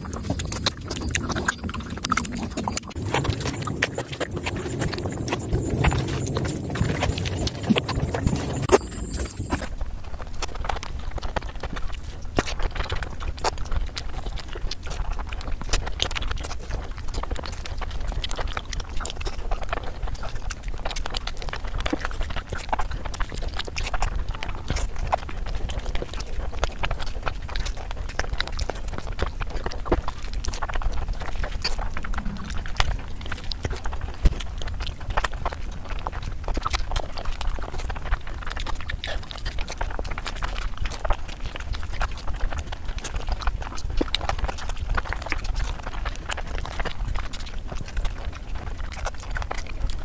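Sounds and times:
low rumble: 0.0s - 9.8s, 31.6s - 34.2s
wet chewing and lip-smacking: 0.0s - 50.0s.

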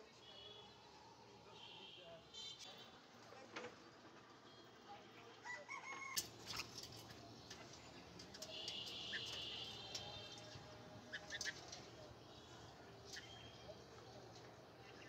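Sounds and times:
birds chirping: 6.8s - 15.0s.

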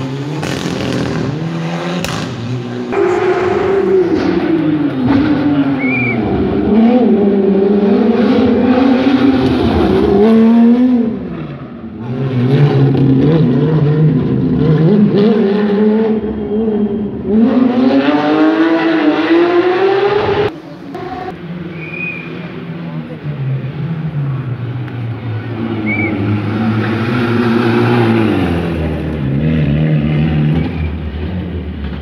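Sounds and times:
rally car engine revving: 0.0s - 32.0s.

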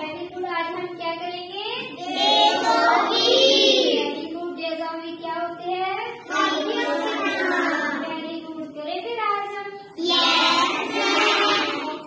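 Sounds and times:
children singing in unison: 2.0s - 4.1s, 6.2s - 8.0s, 10.0s - 12.0s.

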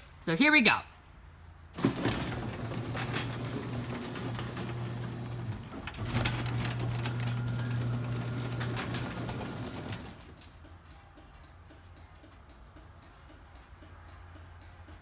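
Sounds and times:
garage door opener motor humming: 1.7s - 10.7s.

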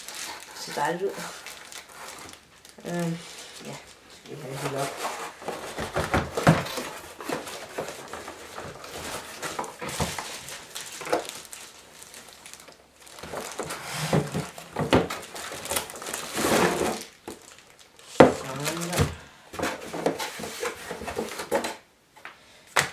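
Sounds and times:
cardboard flaps rustling: 0.0s - 21.8s
plastic crinkling: 0.0s - 21.8s.

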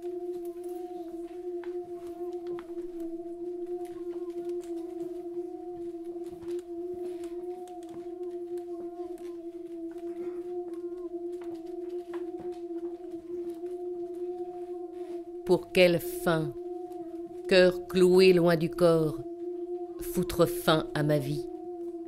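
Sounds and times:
faint clicks and rustles: 0.0s - 15.5s
steady drone on one note: 0.0s - 22.0s.

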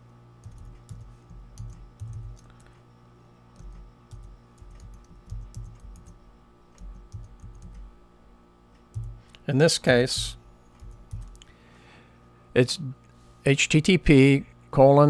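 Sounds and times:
steady low hum: 0.0s - 15.0s
computer keyboard typing: 0.4s - 2.7s, 3.5s - 7.9s, 8.9s - 9.4s, 10.1s - 11.5s.

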